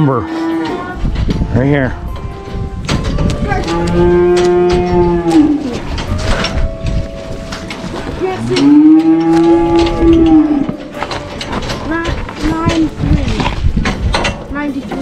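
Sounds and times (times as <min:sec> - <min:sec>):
cattle mooing: 0:00.0 - 0:01.0, 0:03.2 - 0:06.8, 0:08.2 - 0:11.2.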